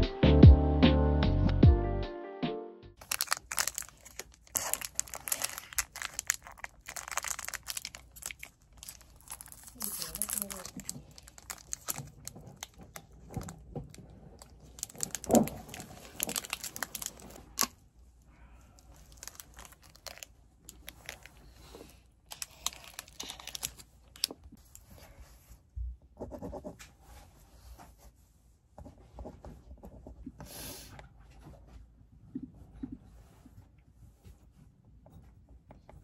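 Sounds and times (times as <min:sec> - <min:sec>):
wrapper tearing and crinkling: 0:03.0 - 0:17.8, 0:18.8 - 0:21.6, 0:22.3 - 0:24.4.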